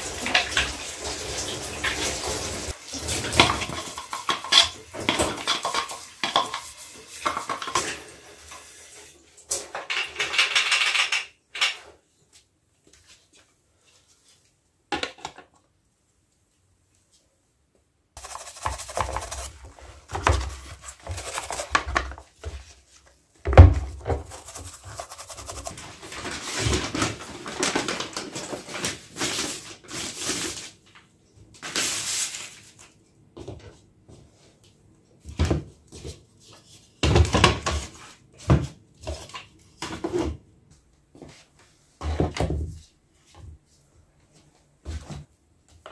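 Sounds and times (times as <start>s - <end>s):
running tap water: 0.0s - 9.4s
brush scrubbing plastic parts: 18.2s - 23.0s, 24.1s - 26.8s.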